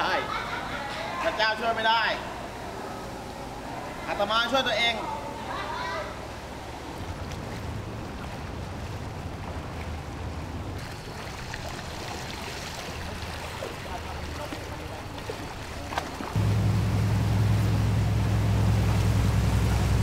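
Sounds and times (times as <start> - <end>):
water sloshing: 6.1 - 20.0
low engine hum: 6.2 - 20.0.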